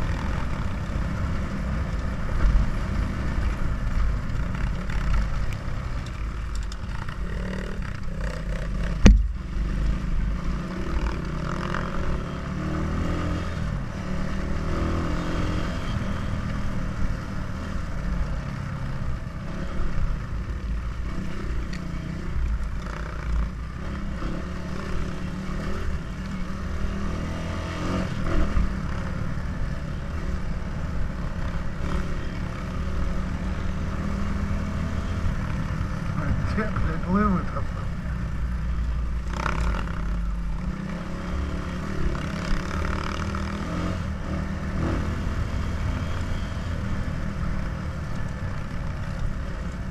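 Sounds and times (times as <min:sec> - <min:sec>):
dirt bike engine: 0:00.0 - 0:49.9
chassis rattling over bumps: 0:04.1 - 0:09.6.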